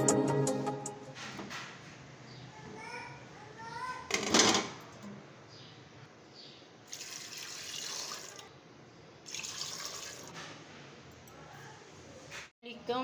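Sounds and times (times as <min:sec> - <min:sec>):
tap water pouring into pot: 0:06.9 - 0:08.5, 0:09.3 - 0:10.4.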